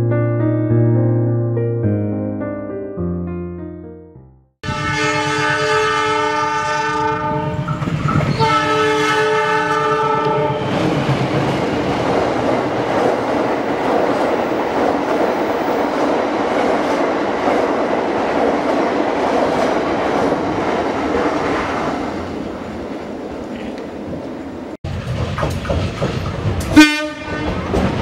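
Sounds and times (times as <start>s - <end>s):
train horn: 4.6s - 10.7s, 26.7s - 27.8s
train cars rolling on rails: 7.4s - 8.9s, 9.8s - 28.0s.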